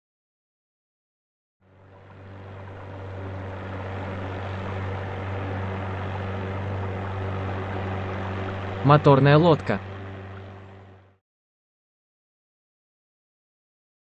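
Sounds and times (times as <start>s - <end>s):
motorboat engine drone: 1.6s - 11.2s.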